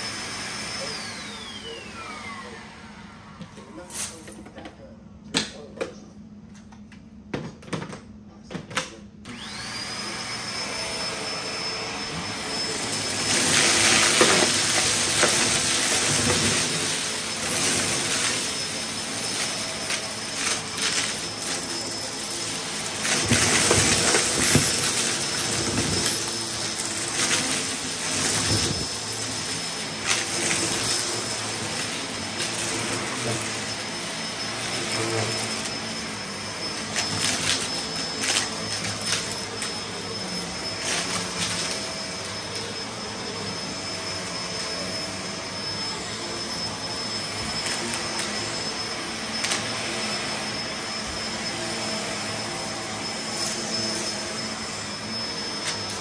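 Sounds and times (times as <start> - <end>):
vacuum cleaner motor whine: 0.0 - 4.7, 6.7 - 56.0
debris crackling in vacuum: 12.8 - 33.8.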